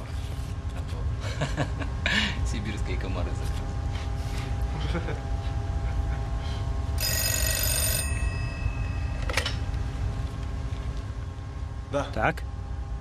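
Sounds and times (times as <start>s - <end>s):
steady low hum: 0.0s - 13.0s
telephone bell ringing: 7.0s - 9.5s.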